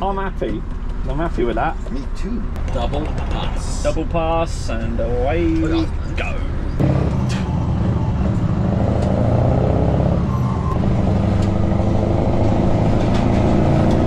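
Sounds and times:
diesel truck engine under load: 3.6 - 14.0.

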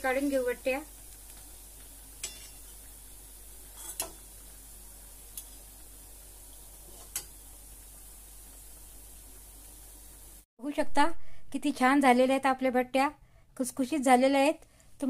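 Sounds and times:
frying oil hissing: 0.0 - 10.5
metal utensils clicking against pan: 2.2 - 2.6, 3.8 - 4.2.

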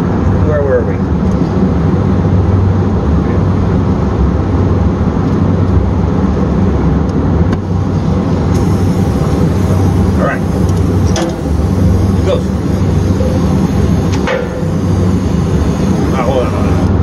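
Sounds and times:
brazing torch roaring: 7.5 - 17.0.

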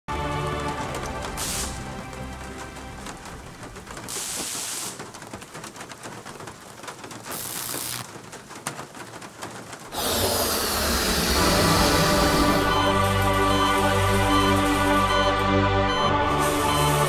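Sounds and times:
synthwave music: 0.1 - 4.0, 9.9 - 17.0
faint hiss and crackle: 3.7 - 10.8
high noise swells: 10.0 - 13.1.

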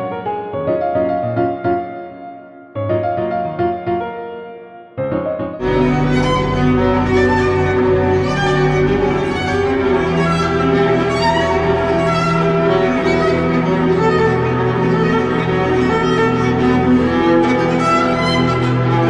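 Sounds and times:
slow bowed strings music: 5.6 - 19.0.

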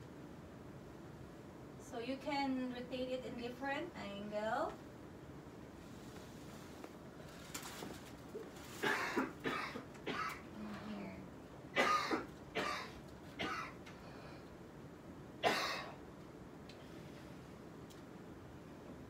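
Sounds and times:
person coughing: 8.8 - 10.5, 11.8 - 13.8, 15.4 - 16.0.

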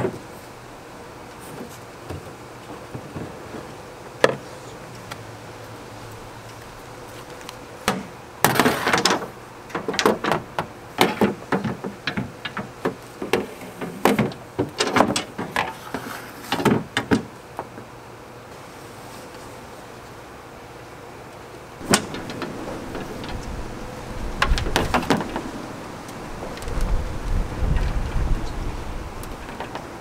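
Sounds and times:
poles knocking on aluminum hull: 21.8 - 25.5.

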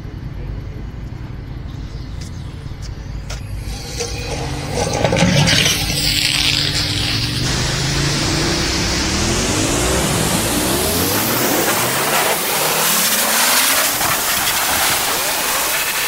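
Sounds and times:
pressure washer motor hum: 1.8 - 16.0
water spray hissing: 3.6 - 16.0.

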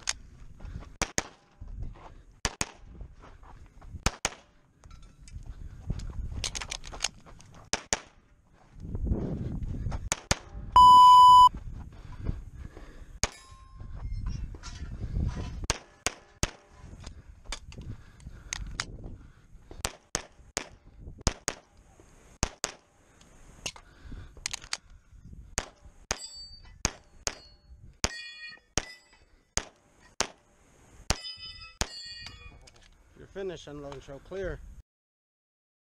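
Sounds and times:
steel plates ringing: 26.1 - 29.3, 31.1 - 32.6.

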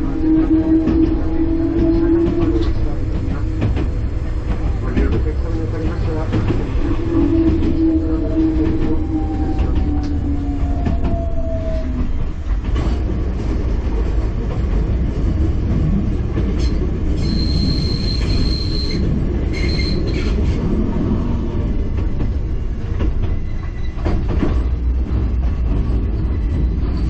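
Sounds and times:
train wheels rumbling on track: 0.0 - 27.0
high-pitched wheel squeal: 17.2 - 20.4.

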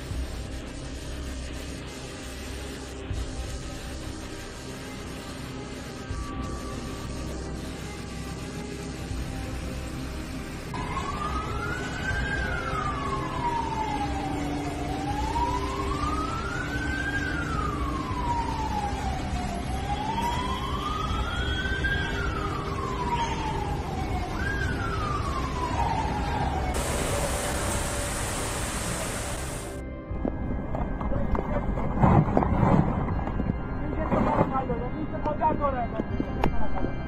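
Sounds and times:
loud hiss: 0.0 - 10.8, 26.7 - 29.8
emergency vehicle siren wailing: 10.7 - 29.8.

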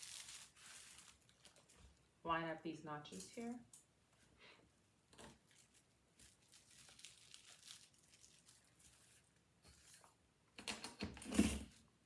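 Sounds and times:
paper rustling and crinkling: 0.0 - 2.0, 5.2 - 10.2.

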